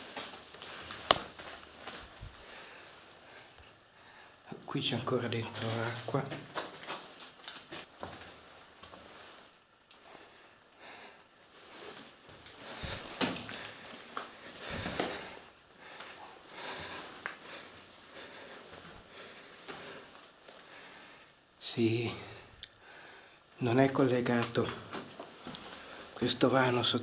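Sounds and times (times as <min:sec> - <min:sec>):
scuffs and rustles: 0:00.0 - 0:03.2, 0:05.4 - 0:09.6, 0:11.4 - 0:20.7.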